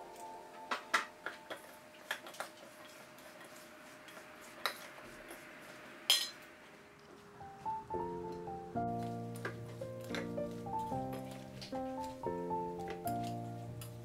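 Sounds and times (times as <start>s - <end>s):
metal spoon striking bowl: 6.1s - 6.4s.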